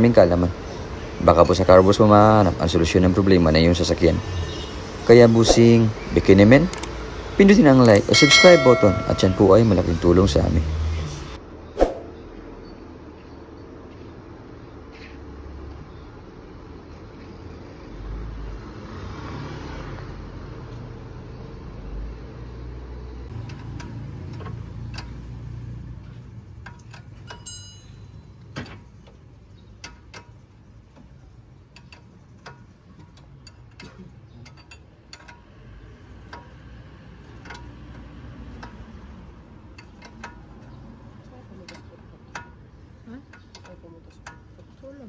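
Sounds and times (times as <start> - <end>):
hand tools clicking and tapping: 6.7 - 7.1, 7.8 - 10.0, 23.3 - 44.8
ringing metal clink: 7.9 - 10.4, 27.3 - 28.4.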